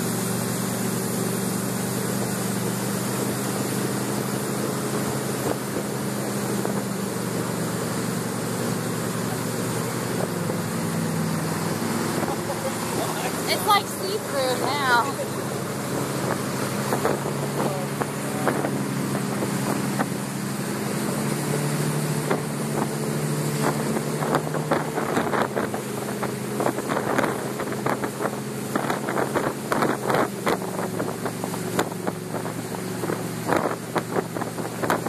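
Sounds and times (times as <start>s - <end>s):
motorboat engine running: 0.0s - 35.0s
wake rushing: 0.0s - 35.0s
wind on microphone: 14.4s - 35.0s.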